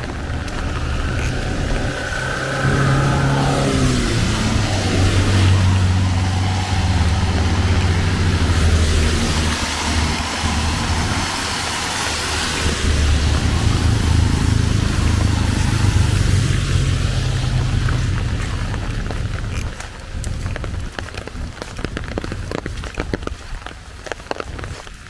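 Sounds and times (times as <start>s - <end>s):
vehicle engine running: 0.0s - 24.9s
rain hissing: 0.0s - 25.0s.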